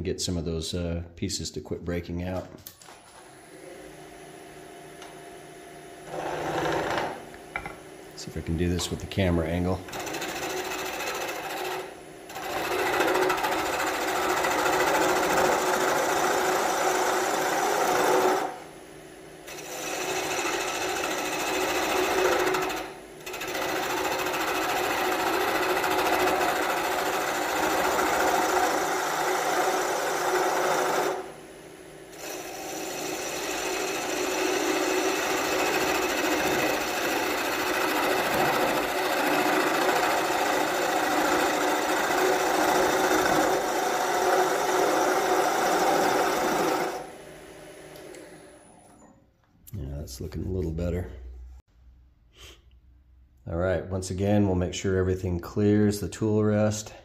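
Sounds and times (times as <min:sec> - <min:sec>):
chisel cutting wood on lathe: 0:06.0 - 0:07.8, 0:08.5 - 0:18.6, 0:19.4 - 0:31.4, 0:32.1 - 0:47.2
wood lathe running: 0:06.0 - 0:07.9, 0:08.5 - 0:18.8, 0:19.4 - 0:49.0.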